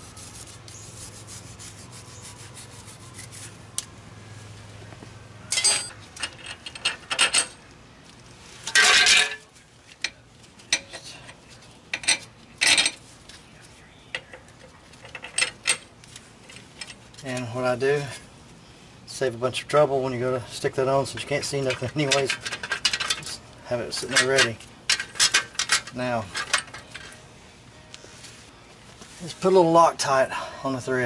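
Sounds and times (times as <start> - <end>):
wire brush scrubbing steel: 0.0 - 3.6
metal bolts clinking: 5.5 - 7.6, 8.7 - 9.5, 11.9 - 13.0, 15.0 - 15.9, 21.6 - 27.2.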